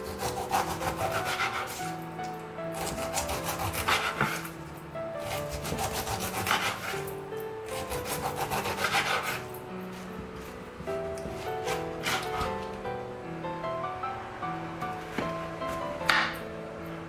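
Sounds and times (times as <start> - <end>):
knife sawing through pineapple rind: 0.0 - 2.0, 2.7 - 4.6, 5.2 - 10.5, 11.3 - 12.6
background music: 0.0 - 17.0.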